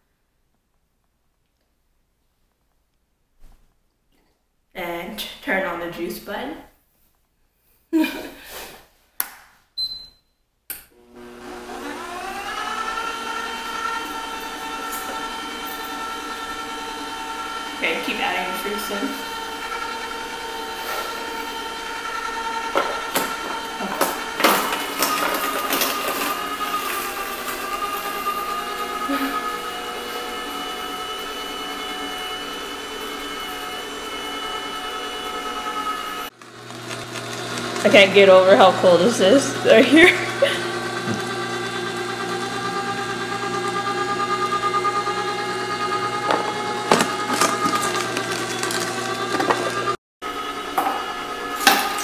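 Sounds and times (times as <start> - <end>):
juicer motor whine: 11.0 - 52.0.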